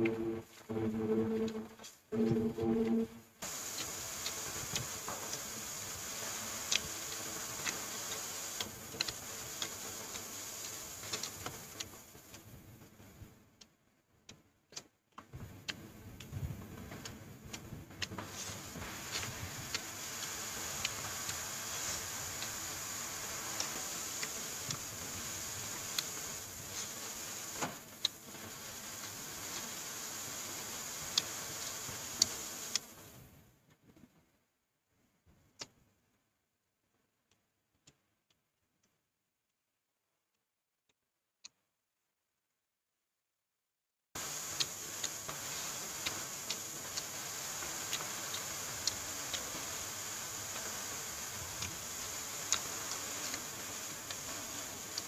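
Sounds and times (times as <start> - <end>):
steady hiss: 0.0 - 13.6, 15.3 - 33.5, 44.2 - 55.0.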